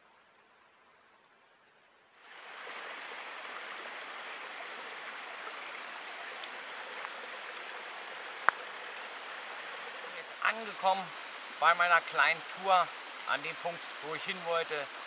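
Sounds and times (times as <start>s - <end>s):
stream trickling over rocks: 0.1s - 15.0s.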